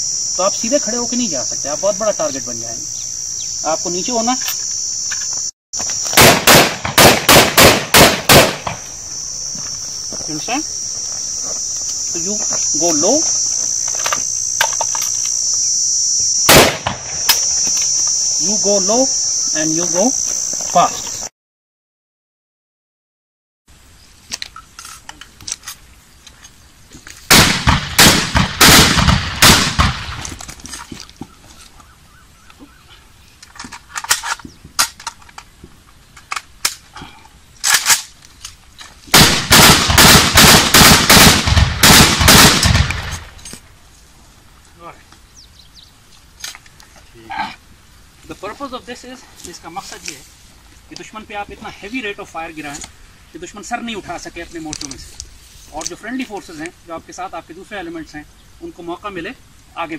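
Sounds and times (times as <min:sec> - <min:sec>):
rifle shots: 0:06.1 - 0:08.8, 0:16.5 - 0:17.5, 0:27.3 - 0:30.3, 0:39.1 - 0:43.3
steady high-pitched drone: 0:08.8 - 0:16.5.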